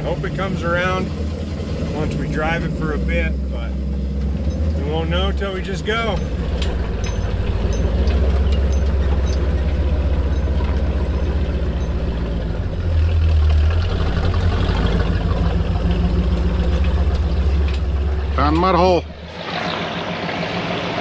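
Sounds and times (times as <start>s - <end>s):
truck engine droning: 0.0s - 21.0s
light knocks and rattles: 4.2s - 12.6s.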